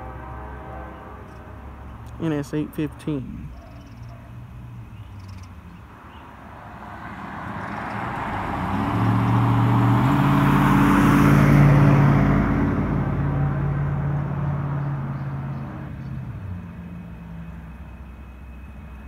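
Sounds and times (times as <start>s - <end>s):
truck driving past: 6.5s - 19.0s.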